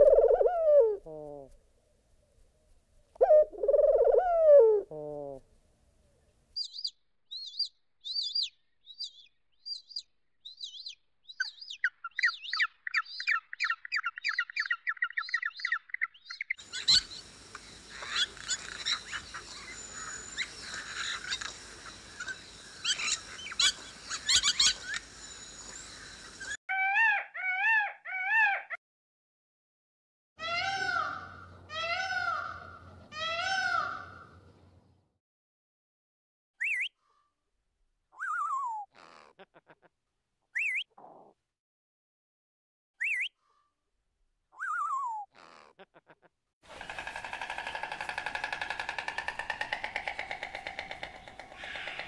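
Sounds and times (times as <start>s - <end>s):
birds chirping and trilling: 6.1s - 28.7s, 46.7s - 52.0s
steady hiss: 16.6s - 26.6s.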